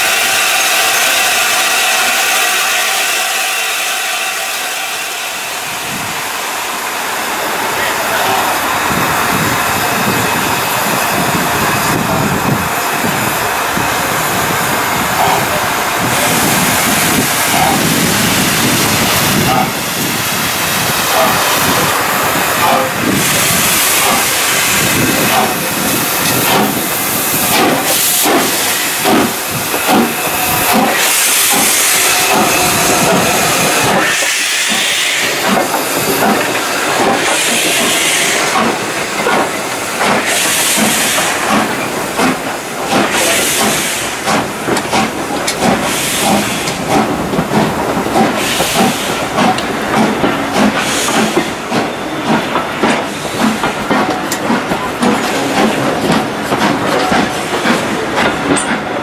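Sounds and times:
steam locomotive hissing and chuffing: 0.0s - 59.0s
train wheels clicking over rail joints: 8.1s - 59.0s.

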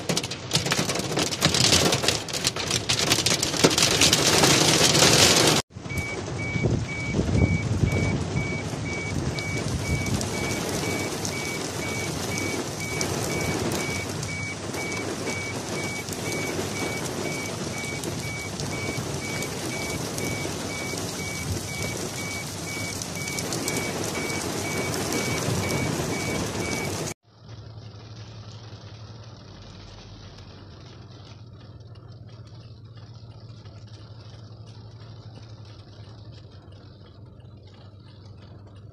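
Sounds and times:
heavy rain pouring: 0.0s - 38.9s
high electronic beep: 5.9s - 27.1s.

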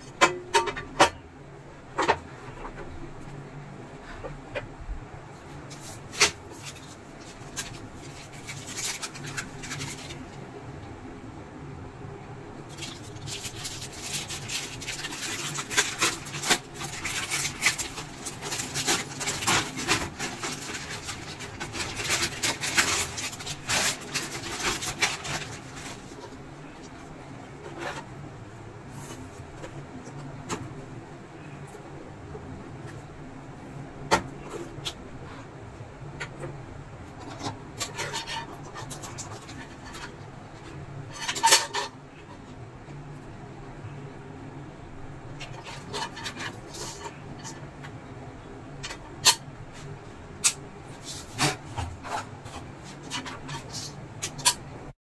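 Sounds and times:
plastic packet crackling: 5.7s - 10.4s, 12.7s - 26.3s.

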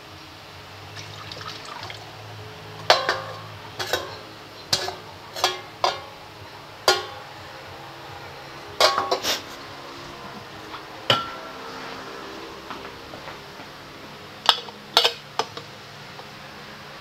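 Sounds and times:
saucepan clanking against metal bowl: 2.8s - 6.1s.

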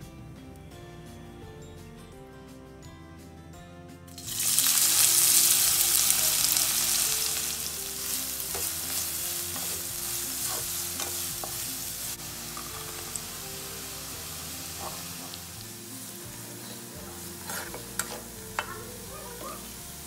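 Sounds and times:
onions sizzling in oil: 4.1s - 20.0s.

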